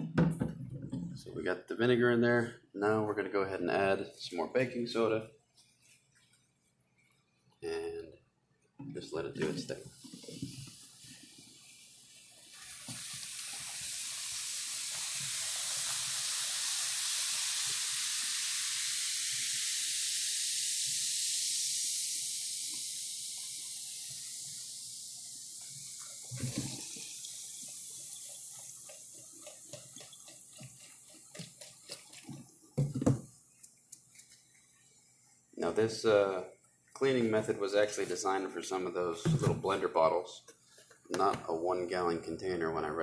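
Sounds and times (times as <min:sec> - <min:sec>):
fizzing foaming bubbles: 0:10.0 - 0:32.8.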